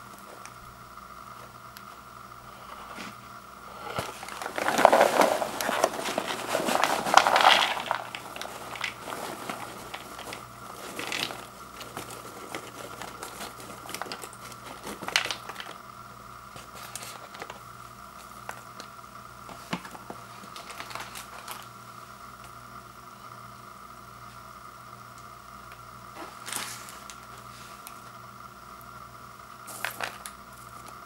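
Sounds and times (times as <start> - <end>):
paper bag crinkling: 3.9 - 15.8, 19.6 - 21.7
popcorn tumbling into plastic bowl: 3.9 - 15.8, 29.7 - 31.0.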